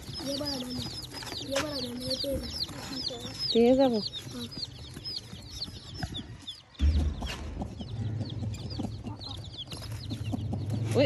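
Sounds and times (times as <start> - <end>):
chicks peeping: 0.0 - 11.0
low thump: 6.8 - 8.9.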